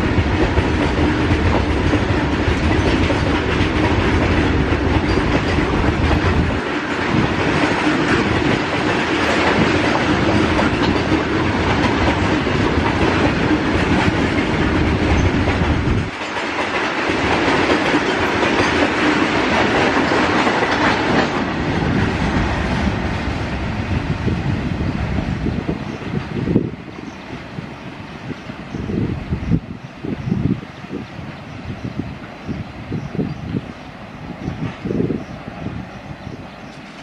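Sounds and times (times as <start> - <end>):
wheels clacking over rail joints: 0.0 - 23.7, 33.6 - 37.0
freight train rumbling past: 0.0 - 37.0.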